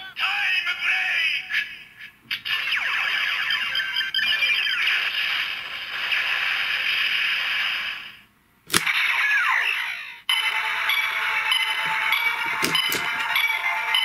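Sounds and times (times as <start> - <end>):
toy belt electronic sound effects: 2.4 - 5.6, 8.7 - 14.0.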